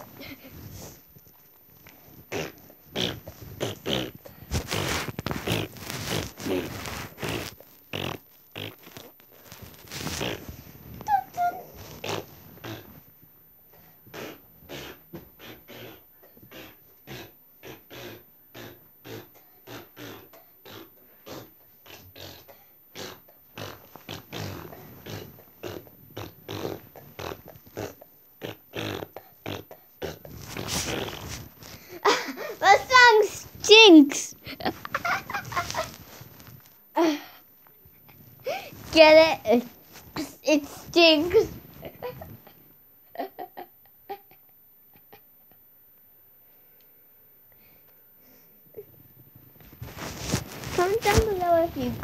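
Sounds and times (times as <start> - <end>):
child making breathy mouth noises: 10.0 - 13.0
child making pig-like grunts: 14.1 - 34.7, 37.0 - 37.4.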